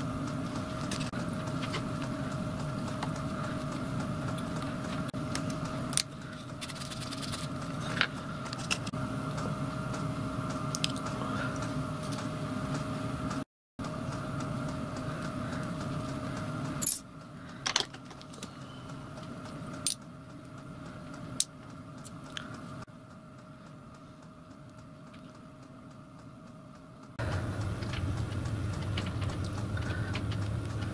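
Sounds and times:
workshop machine motor humming: 0.0s - 30.9s.

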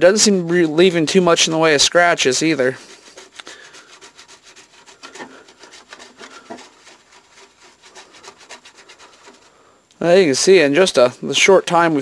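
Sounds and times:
toothbrush scrubbing: 2.1s - 9.7s.

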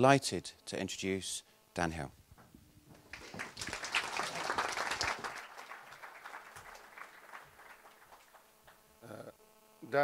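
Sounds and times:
audience applauding: 3.1s - 8.8s.

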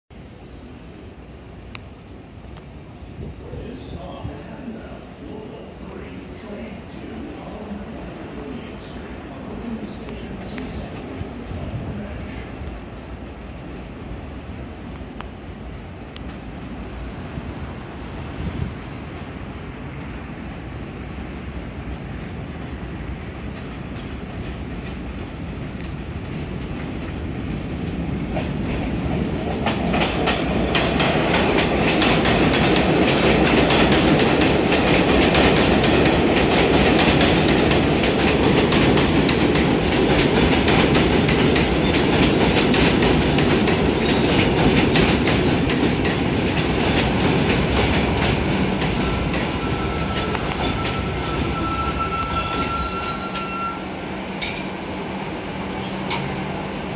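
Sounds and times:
subway train rumble: 0.1s - 56.9s
wheels clacking over rail joints: 27.8s - 51.6s.

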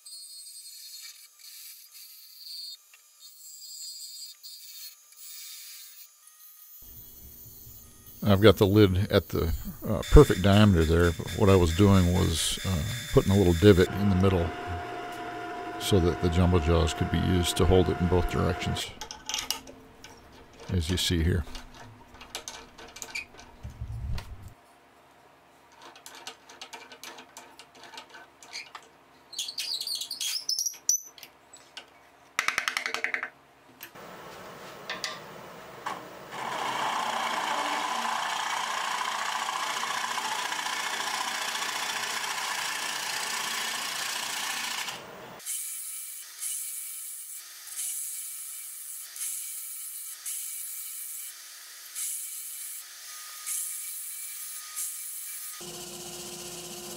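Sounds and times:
gouge cutting wood on lathe: 10.0s - 18.9s, 36.3s - 45.0s.

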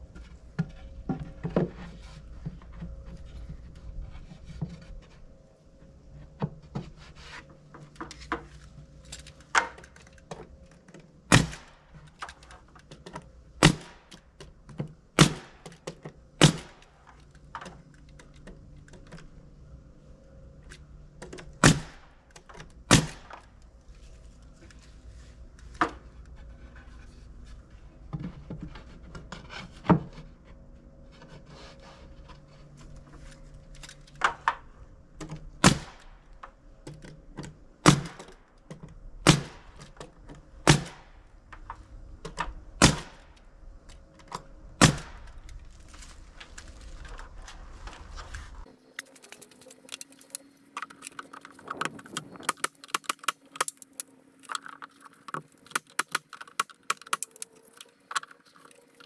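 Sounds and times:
brad nailer firing into wood: 11.3s - 11.8s, 13.6s - 14.2s, 15.2s - 15.8s, 16.4s - 16.8s, 21.6s - 22.1s, 22.9s - 23.4s, 35.6s - 36.1s, 37.8s - 38.3s, 39.2s - 39.8s, 40.6s - 41.2s, 42.8s - 43.3s, 44.8s - 45.3s.

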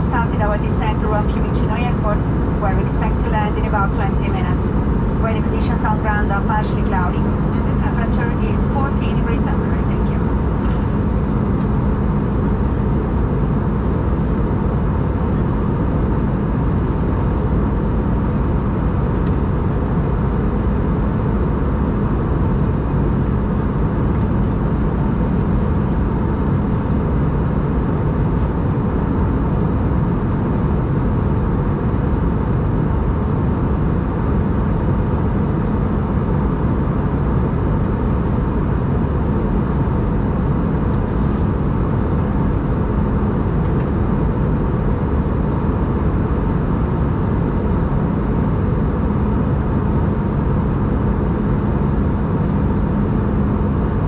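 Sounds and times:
airliner cabin engine rush: 0.0s - 54.0s
faint hum: 0.0s - 54.0s.

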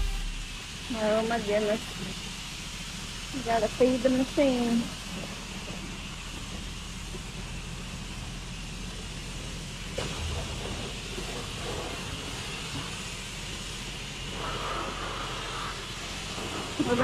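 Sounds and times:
low pump hum: 0.0s - 12.4s
high-pressure water spray hissing: 0.0s - 17.0s.

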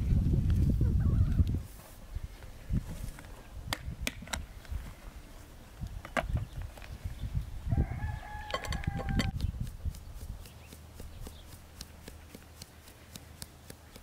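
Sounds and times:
rooster crowing: 7.7s - 9.4s.

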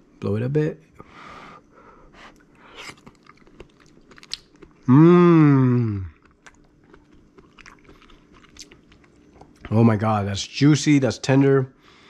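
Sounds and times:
man humming mmm: 4.8s - 6.2s
man blowing on food: 4.9s - 6.2s.

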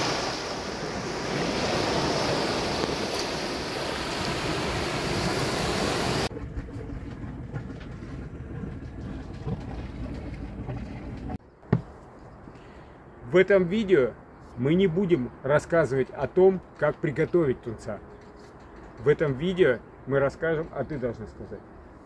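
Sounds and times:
water and wind rushing: 0.0s - 11.4s
low rumble: 6.3s - 11.4s.

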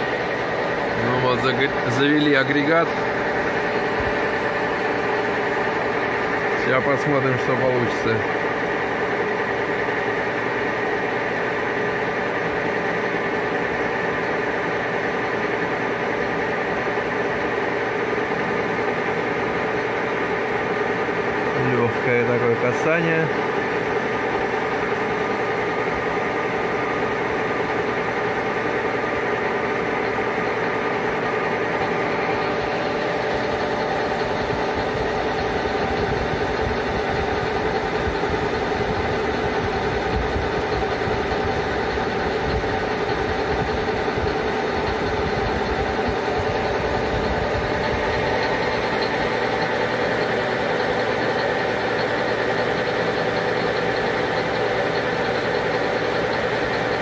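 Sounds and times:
metal lathe humming: 0.0s - 57.0s.

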